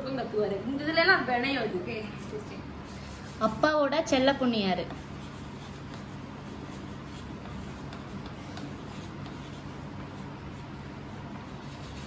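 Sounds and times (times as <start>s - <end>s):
low room hum: 0.0s - 12.0s
stylus scratching on slate: 2.2s - 3.8s, 4.8s - 12.0s.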